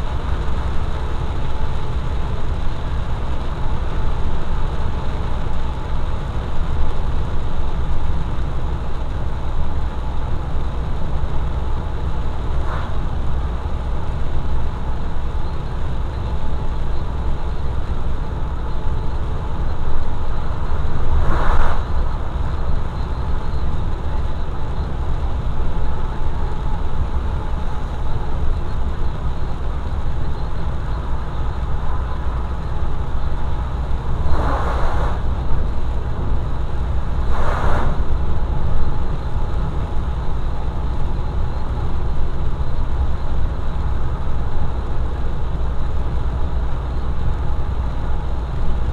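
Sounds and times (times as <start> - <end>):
road and engine rumble: 0.0 - 48.9
tyres hissing on wet road: 20.4 - 23.3, 33.9 - 35.9, 37.0 - 38.4.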